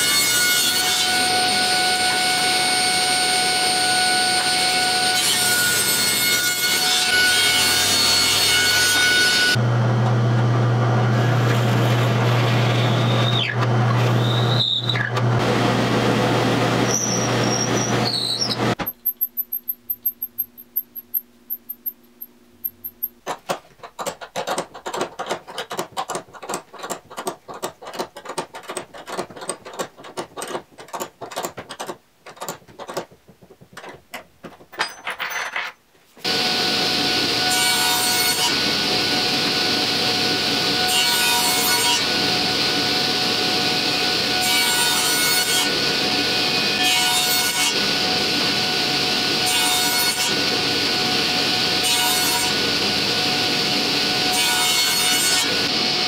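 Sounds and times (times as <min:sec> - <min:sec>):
table saw whining: 0:00.1 - 0:22.0, 0:36.3 - 0:56.0.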